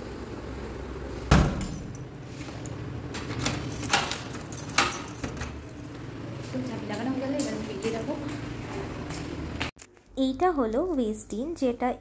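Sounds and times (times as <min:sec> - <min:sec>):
front door shutting thump: 0:01.3 - 0:01.9
key clicking and rattling in lock: 0:03.3 - 0:05.8.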